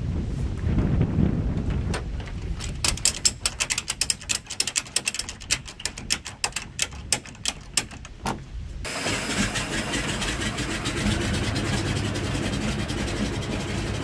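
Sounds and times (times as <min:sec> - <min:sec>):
rapid sharp mechanical clicks: 0:02.4 - 0:08.2.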